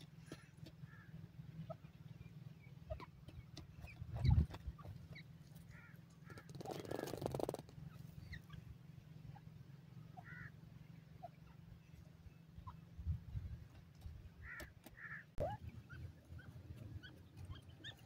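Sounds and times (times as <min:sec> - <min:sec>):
bird chirps: 0:01.6 - 0:09.5, 0:14.5 - 0:18.0.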